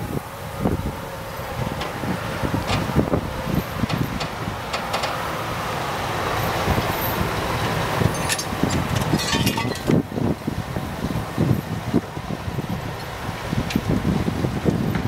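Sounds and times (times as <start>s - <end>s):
vehicle noise: 0.0s - 15.0s
wind gusting on microphone: 0.0s - 15.0s
light metallic clinks and rattles: 8.1s - 10.0s.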